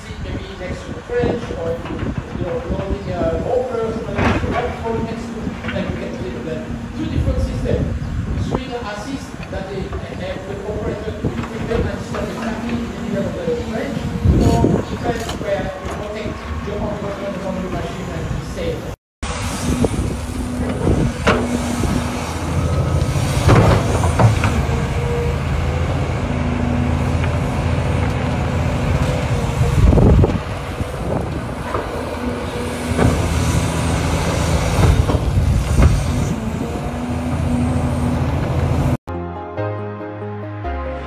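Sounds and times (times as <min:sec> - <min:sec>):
excavator diesel engine under load: 0:00.0 - 0:39.0
excavator bucket clanking: 0:03.9 - 0:06.3, 0:20.5 - 0:38.9.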